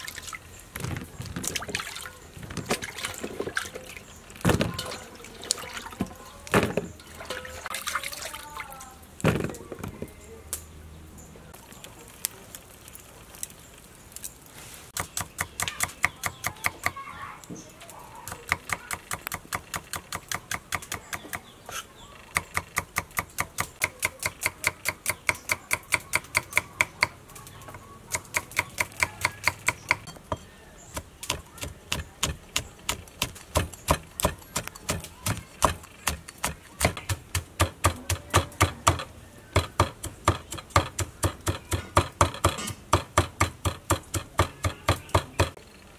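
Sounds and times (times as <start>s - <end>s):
cleaver chopping on wooden block: 28.2s - 45.6s.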